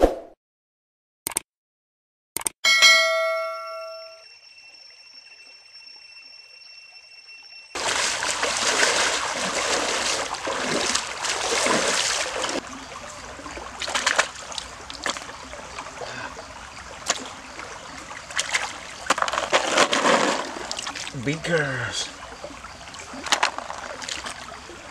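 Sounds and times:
stream water splashing: 7.8s - 24.9s.

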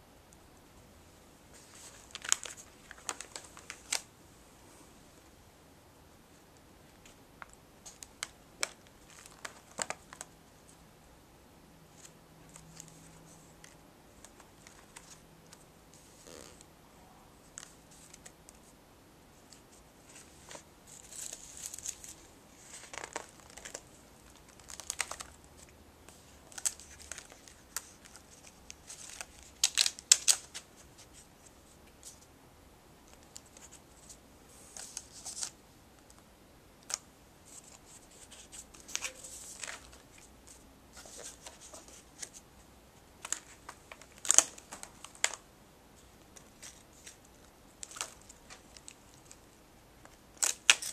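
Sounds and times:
paper pages rustling: 1.5s - 4.1s, 19.5s - 25.4s, 26.1s - 31.3s, 33.2s - 35.6s, 36.9s - 42.4s.

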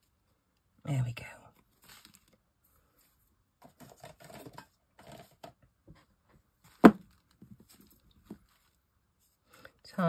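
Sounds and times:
paper and card rustling: 1.7s - 5.4s.

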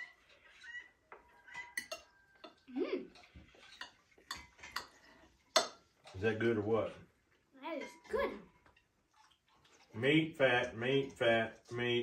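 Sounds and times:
cutlery clinking on plates: 0.0s - 2.6s, 3.2s - 6.3s.

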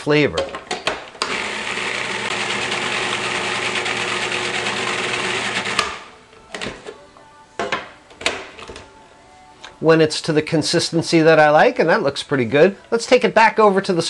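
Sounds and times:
food processor motor running: 1.2s - 6.1s.

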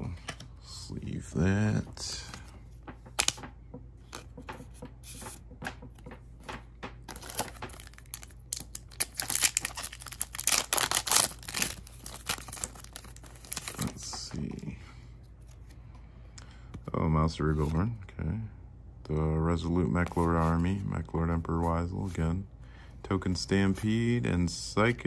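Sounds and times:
foil wrapper tearing and crinkling: 7.1s - 14.0s.

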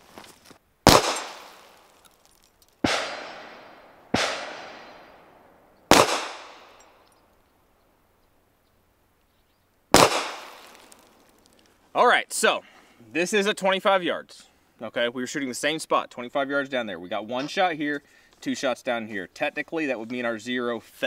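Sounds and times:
pistol shots with echo: 0.9s - 1.6s, 2.8s - 5.2s, 5.9s - 6.8s, 9.9s - 10.7s.

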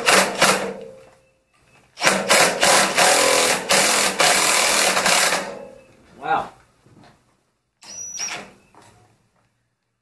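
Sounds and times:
impact driver hammering: 0.0s - 0.9s, 2.0s - 5.7s.

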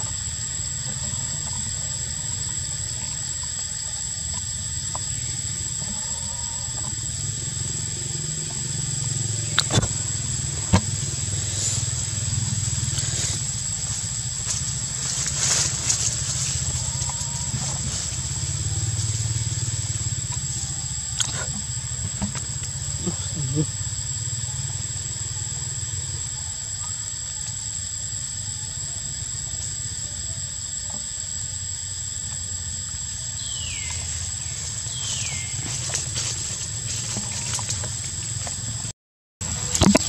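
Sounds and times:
low rumble: 6.8s - 22.7s.

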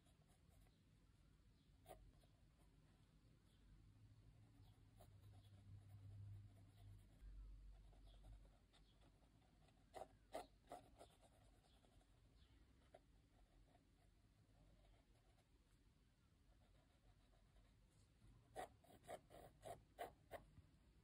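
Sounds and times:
pencil scratching on paper: 4.6s - 12.2s, 16.5s - 20.5s.

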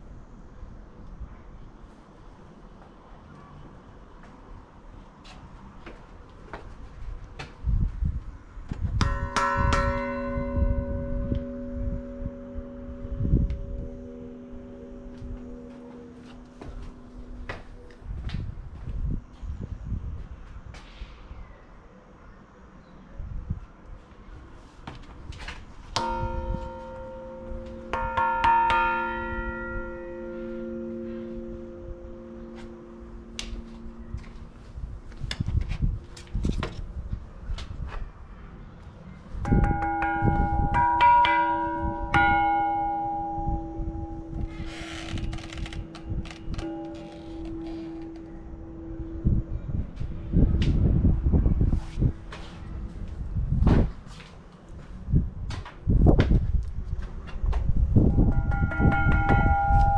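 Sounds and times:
low microphone rumbles: 7.6s - 20.7s, 39.3s - 54.1s, 54.9s - 59.9s
church bell ringing: 9.0s - 18.0s, 26.0s - 35.2s, 39.4s - 51.6s, 58.0s - 59.9s
quick bell strikes: 39.5s - 44.8s.

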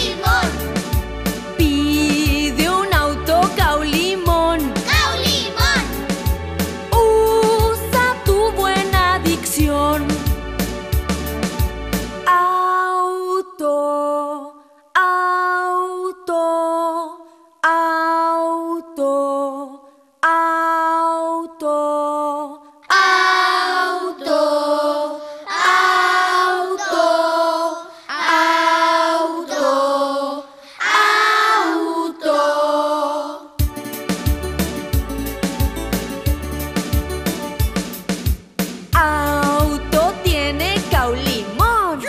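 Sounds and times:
children singing unaccompanied: 0.0s - 0.6s, 4.8s - 6.0s, 22.9s - 33.5s.

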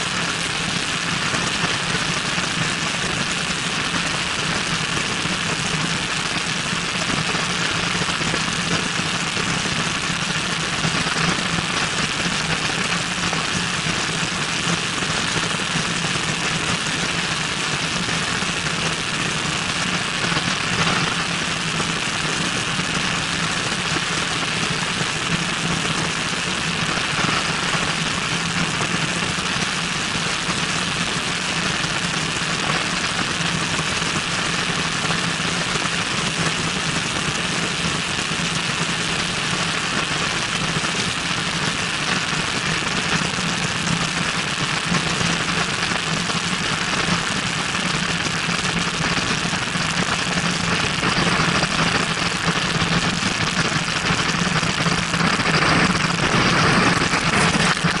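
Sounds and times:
propeller plane engine running: 0.0s - 34.4s, 51.0s - 58.0s.

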